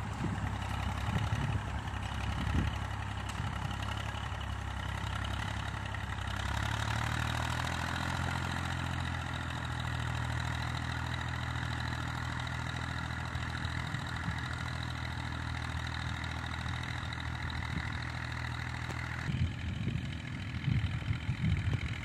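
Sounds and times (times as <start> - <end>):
tractor engine running: 0.0 - 22.0
wind on microphone: 19.3 - 22.0.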